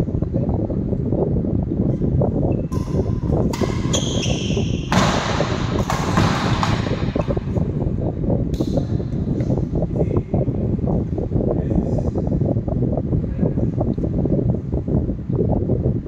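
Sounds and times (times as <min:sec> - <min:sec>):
steady low rumble: 0:00.0 - 0:16.0
footsteps and shoe squeaks: 0:02.4 - 0:07.4
rackets hitting shuttlecock: 0:02.7 - 0:07.4.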